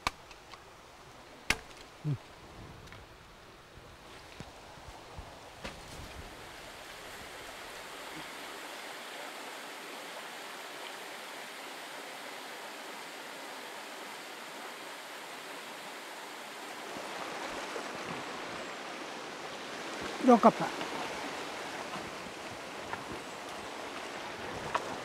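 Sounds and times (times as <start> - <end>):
stream flowing over stones: 6.1 - 25.0.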